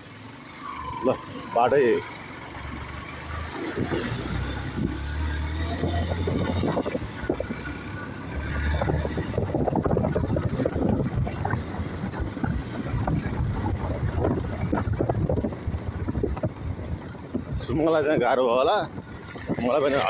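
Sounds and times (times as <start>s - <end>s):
motorcycle engine: 0.0s - 20.0s
clatter and rattle over rocks: 5.8s - 20.0s.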